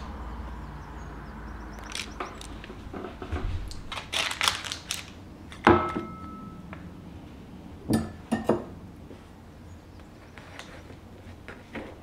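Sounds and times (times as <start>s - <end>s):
bread tearing and crackling: 3.8s - 5.2s
dishes knocking set down: 5.6s - 6.4s
ceramic dishware clink: 5.7s - 6.6s.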